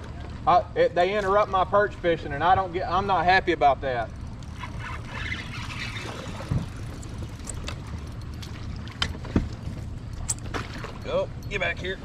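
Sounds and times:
wind and water rumble: 0:00.0 - 0:12.0.

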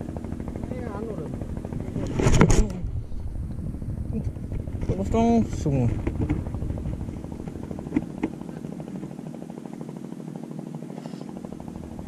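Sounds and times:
boat engine idling: 0:03.6 - 0:09.8.

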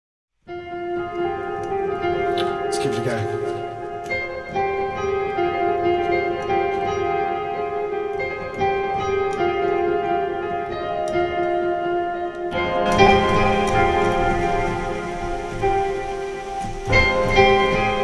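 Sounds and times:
synthesizer electronic music: 0:12.0 - 0:18.0.

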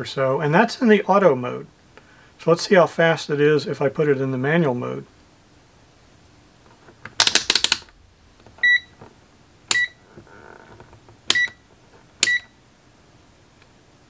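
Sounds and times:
short high beeps: 0:09.7 - 0:10.0, 0:12.2 - 0:12.5.

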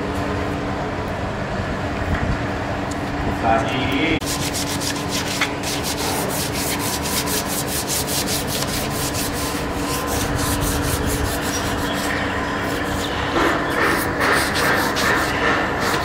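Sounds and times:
steady machine hum: 0:00.0 - 0:16.0
rhythmic scraping strokes: 0:04.2 - 0:16.0.

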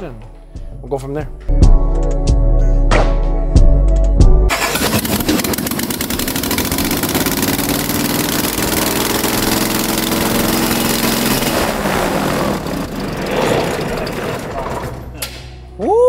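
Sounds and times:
engine turning a propeller: 0:04.5 - 0:15.2.

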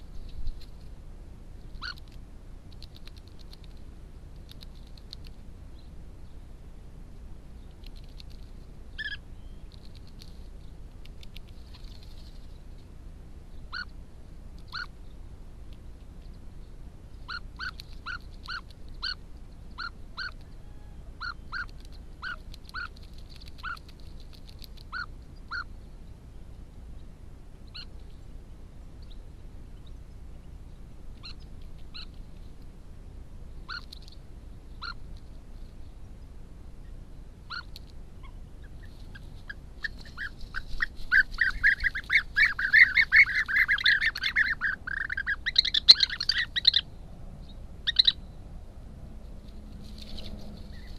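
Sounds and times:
birds calling: 0:01.6 - 0:02.2, 0:07.6 - 0:10.0, 0:13.5 - 0:14.0, 0:14.6 - 0:15.2, 0:17.1 - 0:26.2, 0:27.0 - 0:28.2, 0:29.0 - 0:32.3, 0:33.6 - 0:35.2, 0:36.8 - 0:48.4, 0:50.0 - 0:50.9.

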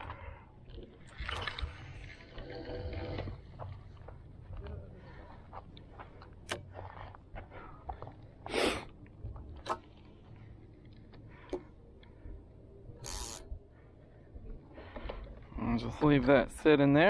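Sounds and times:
fishing reel handling clicks: 0:13.0 - 0:13.5.

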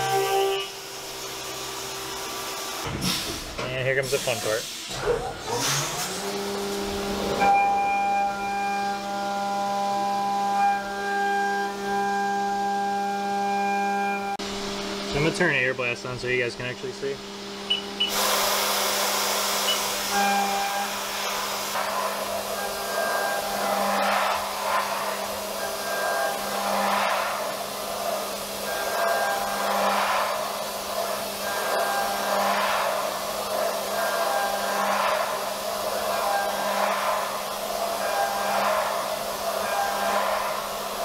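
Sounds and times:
compressed air hissing: 0:18.1 - 0:41.0
milling spindle whine: 0:19.6 - 0:41.0.

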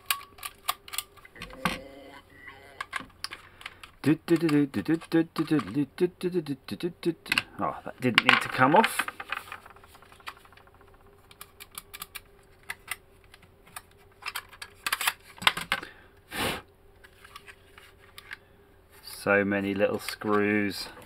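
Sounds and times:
plastic casing clicks and rattles: 0:08.2 - 0:15.9.

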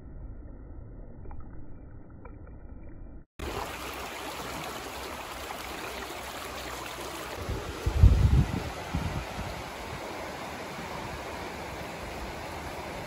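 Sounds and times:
creek water rushing: 0:03.4 - 0:13.0.

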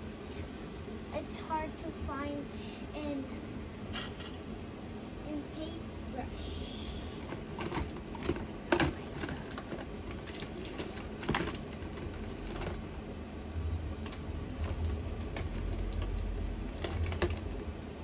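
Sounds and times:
low rumble: 0:12.0 - 0:17.8.

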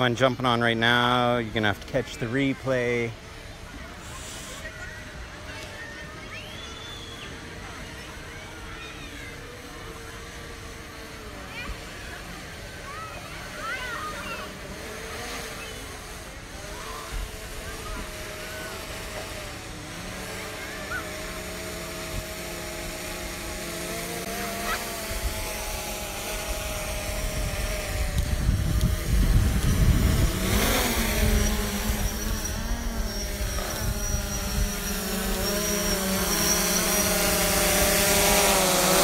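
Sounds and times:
drone propellers humming: 0:09.3 - 0:39.0.

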